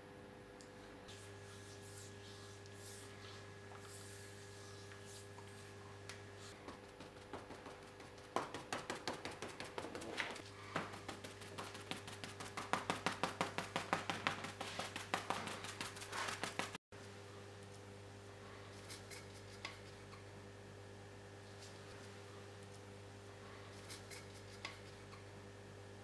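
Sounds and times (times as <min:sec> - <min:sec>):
electrical hum: 0:00.0 - 0:26.0
hand rubbing stone surface: 0:06.4 - 0:16.8.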